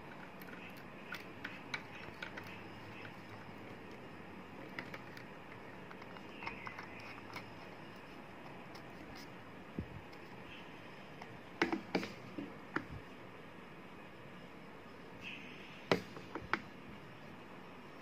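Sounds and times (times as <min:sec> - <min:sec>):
plastic and metal parts clicking: 0:00.0 - 0:04.0, 0:04.6 - 0:07.5
low steady hiss: 0:00.0 - 0:18.0.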